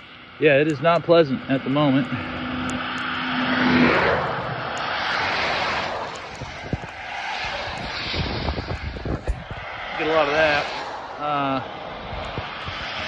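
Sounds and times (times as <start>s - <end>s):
wind and rain buffeting microphone: 3.9s - 13.0s.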